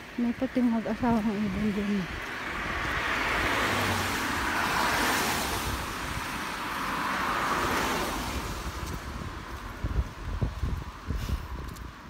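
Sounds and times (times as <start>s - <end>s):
rain on wet pavement: 0.0s - 12.0s.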